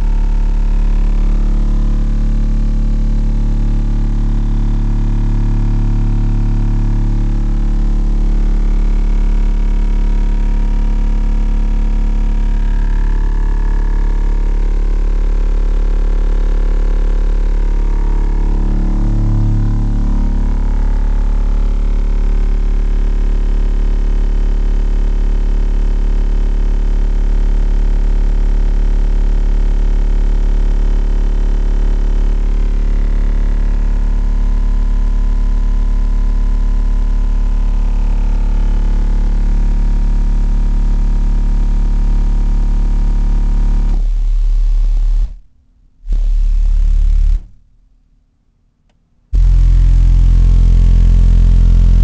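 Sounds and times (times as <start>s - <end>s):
buzzing hum: 0.0s - 10.4s, 16.1s - 22.7s, 43.1s - 45.5s, 46.1s - 47.7s, 49.4s - 52.0s
subwoofers playing deep bass: 0.0s - 45.5s, 46.1s - 47.7s, 49.4s - 52.0s.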